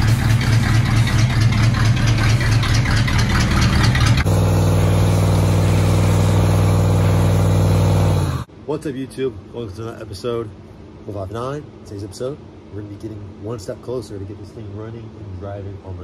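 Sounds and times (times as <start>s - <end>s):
pickup truck engine running: 0.0s - 8.5s.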